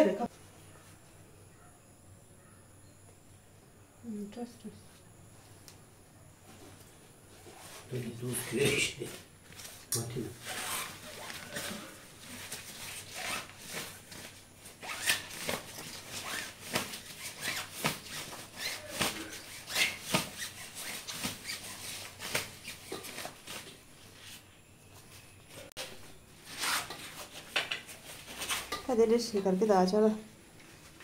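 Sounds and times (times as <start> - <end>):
nylon fabric rustling and crinkling: 7.4 - 24.5.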